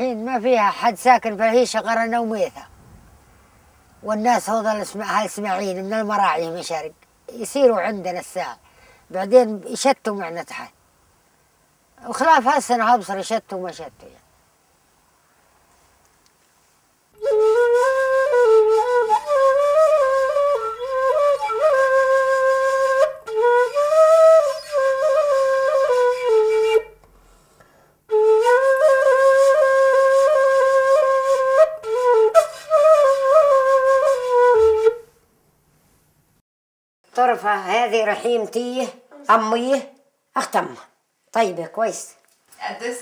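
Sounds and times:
end-blown flute melody: 0:17.2 - 0:27.0, 0:28.1 - 0:35.1.

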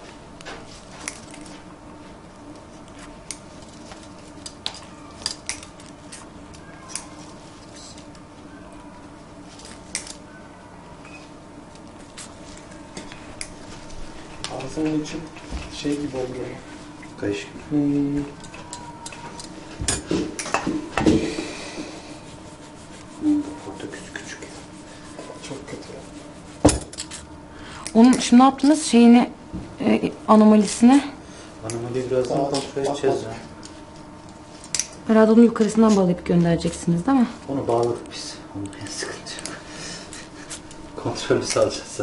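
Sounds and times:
steady low hum: 0:00.0 - 0:42.0
gloved hands rubbing cotton wool: 0:22.1 - 0:26.6.

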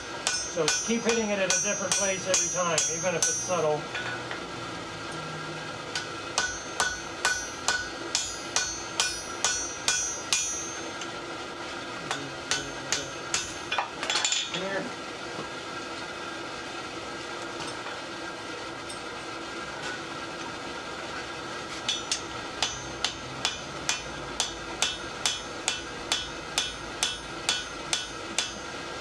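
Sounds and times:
steady background hum: 0:00.0 - 0:29.0
hammer ringing on anvil: 0:00.2 - 0:04.2, 0:06.0 - 0:11.1, 0:12.1 - 0:14.4, 0:21.9 - 0:28.7.

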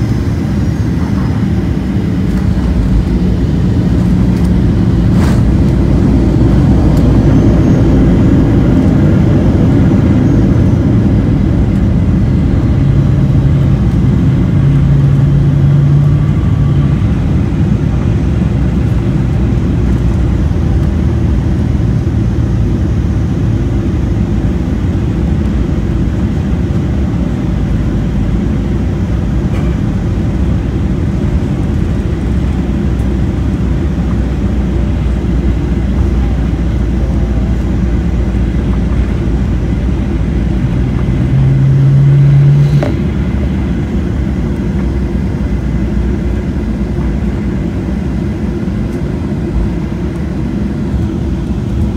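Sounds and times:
airliner cabin rumble: 0:00.0 - 0:51.9
low hum: 0:00.0 - 0:51.9.

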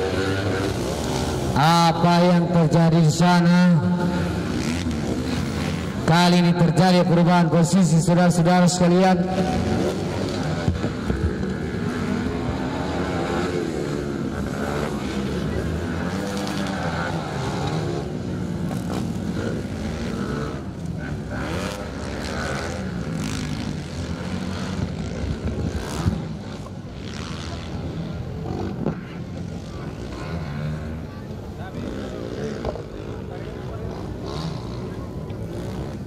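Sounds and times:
dirt bike engines revving: 0:00.0 - 0:36.0.

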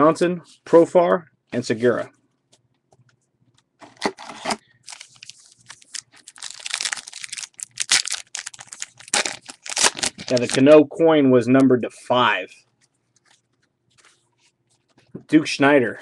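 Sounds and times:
foil wrapper crinkling and tearing: 0:04.0 - 0:10.7.

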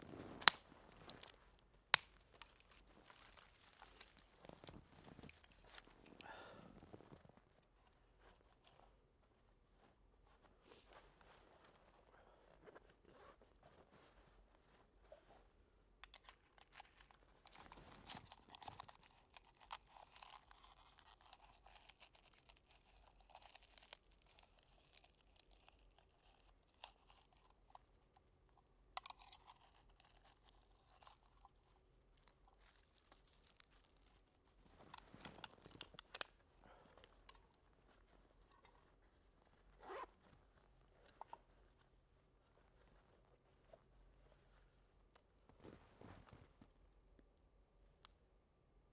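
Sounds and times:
dry twigs crackling and snapping: 0:01.9 - 0:06.0, 0:17.5 - 0:27.2
crunches in snow: 0:02.3 - 0:07.5, 0:39.8 - 0:40.2.

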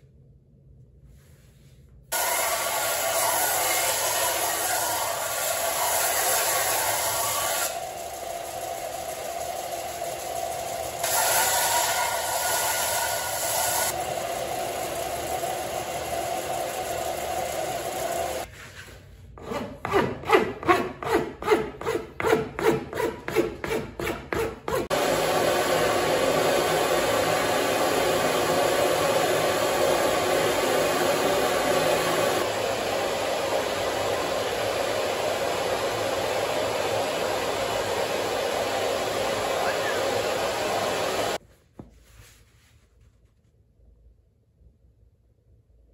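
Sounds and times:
hand file scraping wood: 0:18.5 - 0:24.9
belt sander on wood: 0:19.4 - 0:41.4.

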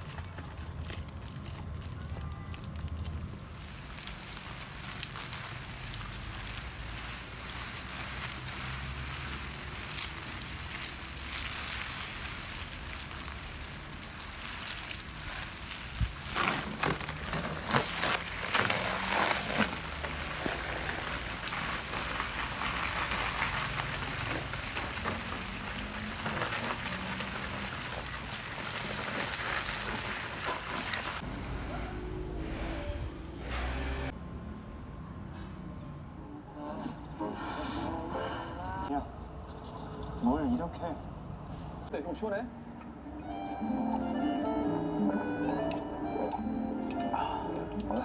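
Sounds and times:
hose water splashing on leaves: 0:00.0 - 0:31.3.

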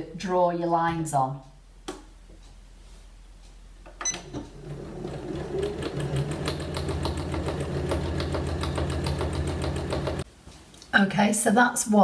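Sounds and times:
sewing machine stitching: 0:04.2 - 0:10.2.

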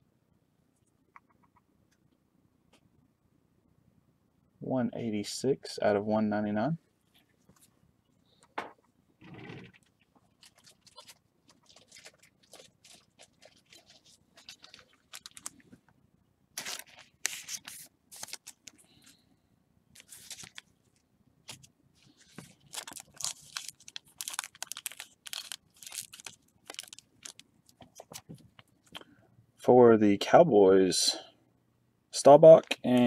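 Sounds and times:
foil wrapper crinkling and tearing: 0:10.4 - 0:15.7, 0:16.6 - 0:18.8, 0:20.0 - 0:20.7, 0:21.5 - 0:28.2.

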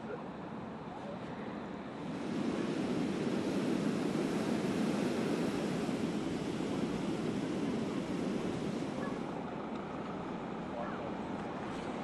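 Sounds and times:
wind buffeting microphone: 0:01.9 - 0:09.4
storm surf breaking on beach: 0:02.0 - 0:09.4.

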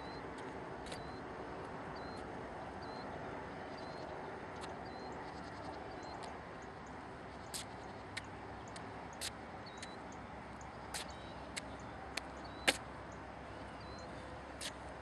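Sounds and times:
small birds chirping: 0:00.0 - 0:01.2, 0:02.0 - 0:15.0
sharp bird chips: 0:10.9 - 0:11.8.

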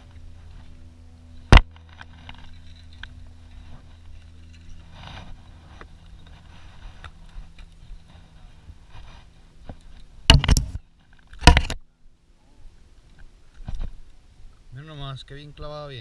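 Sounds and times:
boat motor humming: 0:00.0 - 0:10.8.

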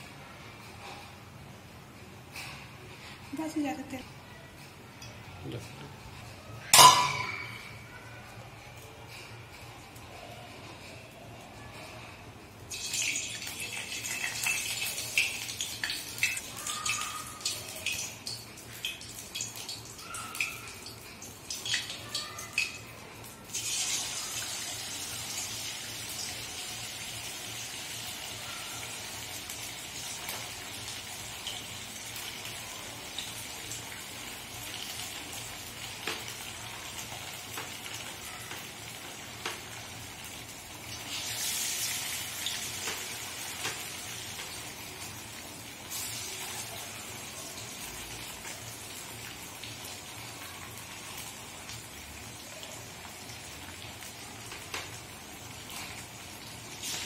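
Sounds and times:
fish deep-frying in hot oil: 0:12.3 - 0:57.0.

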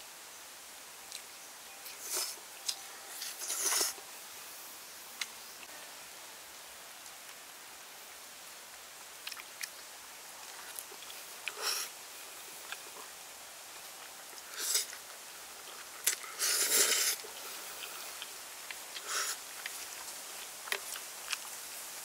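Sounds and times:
chewing: 0:09.2 - 0:09.8, 0:10.4 - 0:11.9, 0:13.8 - 0:21.6
noodles being slurped: 0:16.1 - 0:18.0.

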